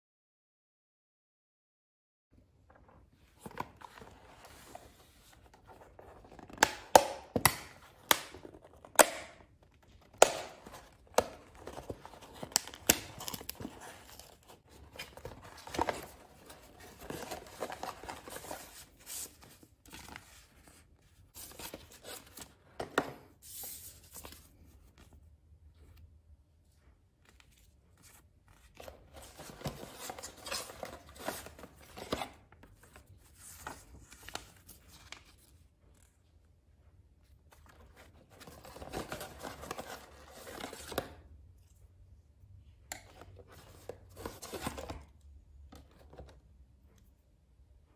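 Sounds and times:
plastic and paper crinkling: 9.5 - 22.6.

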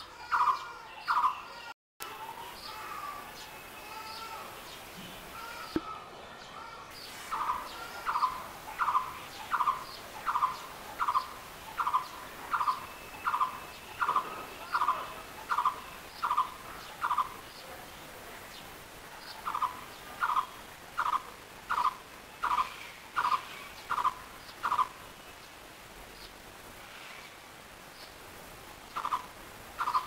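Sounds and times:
barbet calling: 7.0 - 17.4, 19.4 - 25.0, 29.0 - 30.0.

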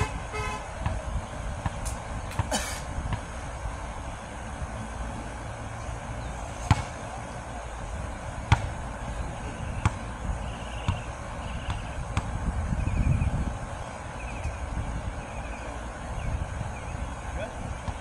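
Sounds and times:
wind rumble on microphone: 0.0 - 18.0
ball bouncing on court: 0.8 - 1.0, 6.6 - 7.0, 8.5 - 8.8, 9.8 - 10.1, 10.8 - 12.4
basketball hitting rim: 6.6 - 7.0, 8.5 - 8.8.

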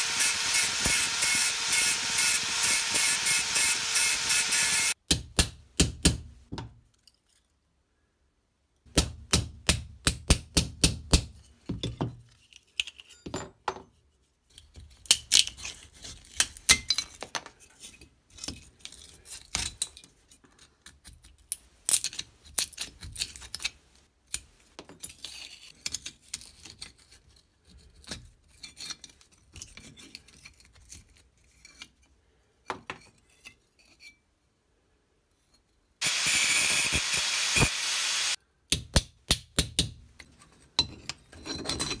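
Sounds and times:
metal clinks and scrapes: 40.2 - 42.0.

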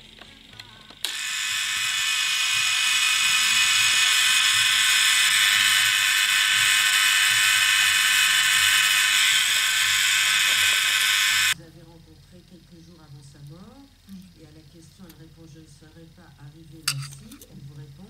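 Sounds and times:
small fan motor whirring: 0.0 - 11.6.

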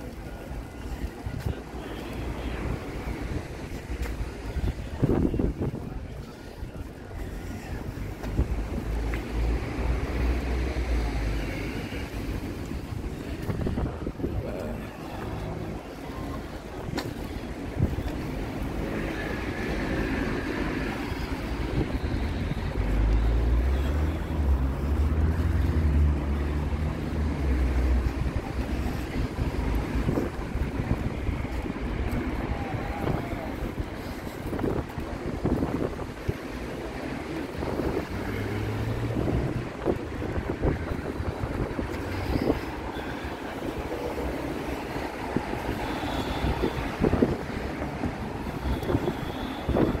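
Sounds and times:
wind buffeting microphone: 2.5 - 9.0, 12.1 - 19.8, 28.0 - 50.0.

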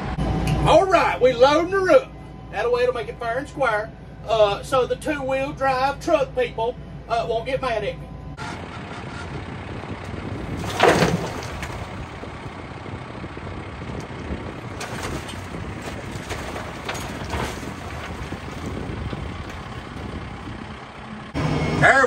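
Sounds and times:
tractor diesel engine running: 0.0 - 22.0
dirt tipped into truck bed: 10.3 - 12.6, 14.0 - 20.7.

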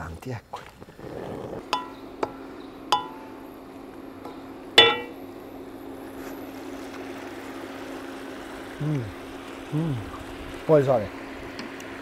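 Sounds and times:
spinach sizzling in oil: 5.9 - 12.0.

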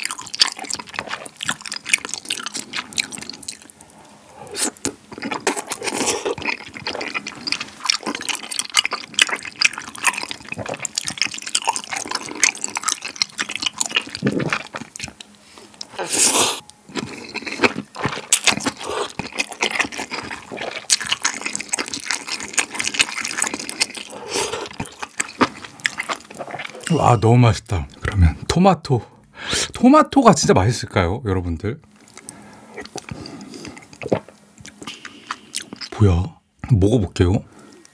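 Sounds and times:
person slurping noodles: 15.9 - 17.4, 23.6 - 25.0
mouth smacks: 33.9 - 36.0.

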